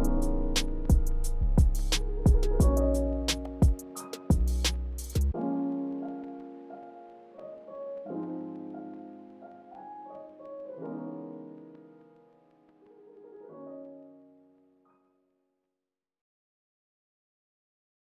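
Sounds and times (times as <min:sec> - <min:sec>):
soft sustained keyboard chords: 0:00.0 - 0:12.8.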